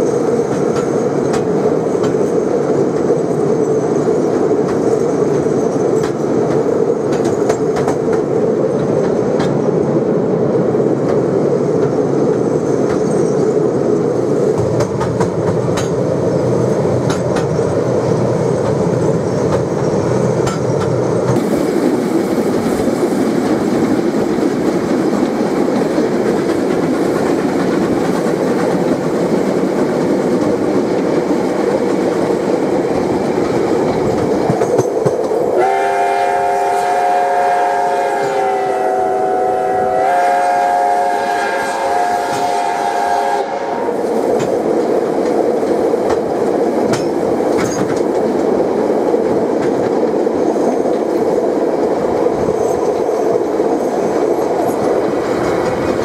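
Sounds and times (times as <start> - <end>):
steam train running: 0.0 - 56.0
steam whistle blast: 35.6 - 44.0.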